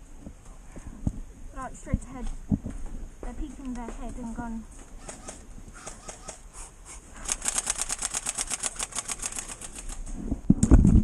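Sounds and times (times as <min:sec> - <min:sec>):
airsoft rifle full-auto burst: 0:05.0 - 0:06.4, 0:07.2 - 0:10.1.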